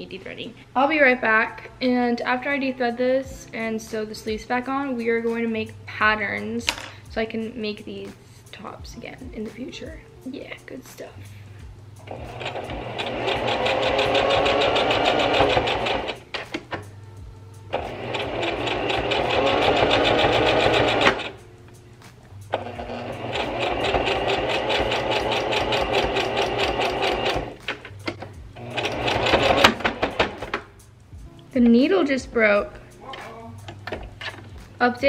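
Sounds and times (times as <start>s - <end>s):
sewing machine stitching: 12.1s - 16.2s, 17.7s - 21.3s, 22.5s - 27.6s, 28.6s - 30.6s.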